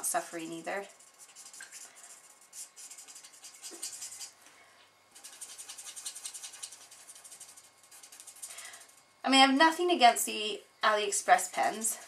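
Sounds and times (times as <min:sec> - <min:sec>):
marker tip scratching on cardstock: 0:00.8 - 0:04.4, 0:05.2 - 0:08.5.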